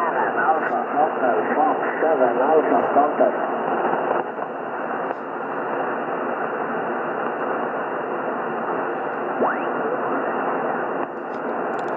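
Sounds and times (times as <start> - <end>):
radio band noise and static: 0.0 - 11.9.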